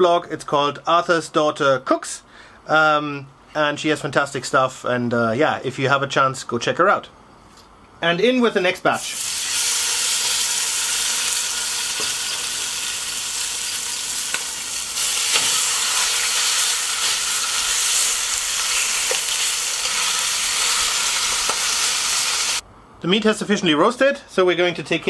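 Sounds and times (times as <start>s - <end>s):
meat sizzling in a pot: 9.0s - 22.6s.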